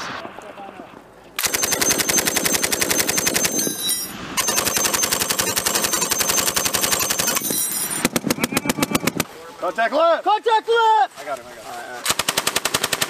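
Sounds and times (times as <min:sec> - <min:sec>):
machine gun automatic bursts: 0:01.4 - 0:09.2, 0:12.0 - 0:13.0.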